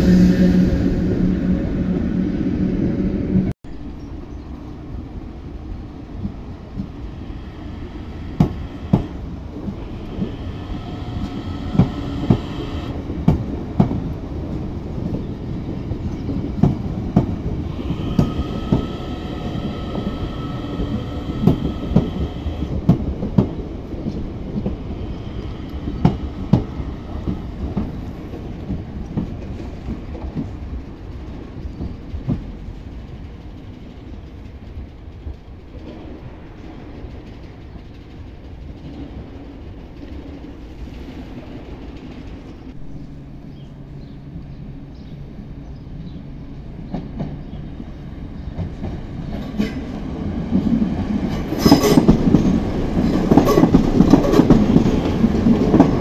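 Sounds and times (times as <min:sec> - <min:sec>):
high whine: 0:00.0 - 0:03.9
electric train rumbling past: 0:00.0 - 0:56.0
wheels clacking over rail joints: 0:48.4 - 0:56.0.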